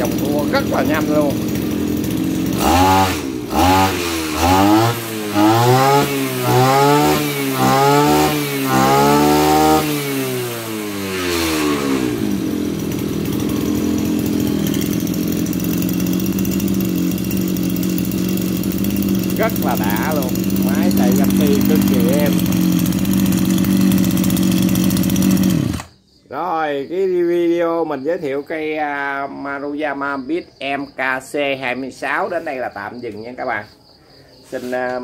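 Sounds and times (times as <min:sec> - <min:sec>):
brush cutter engine revving: 0:00.0 - 0:26.0.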